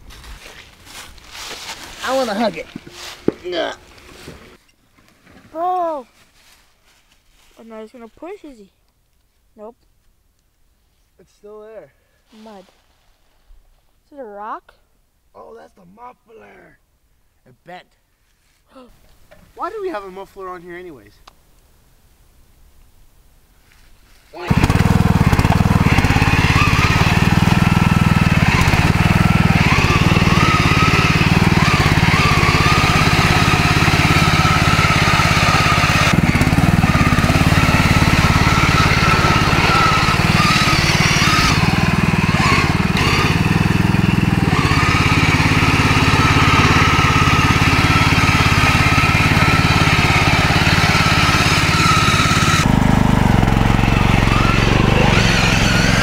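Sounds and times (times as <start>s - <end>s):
riding mower engine running: 24.4s - 56.0s.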